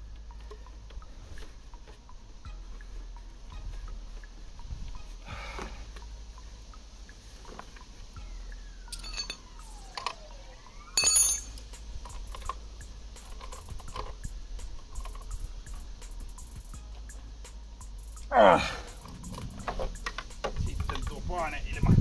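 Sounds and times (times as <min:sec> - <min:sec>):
low steady hum: 0:00.0 - 0:22.0
metal tools clinking: 0:08.9 - 0:09.5, 0:11.0 - 0:11.7.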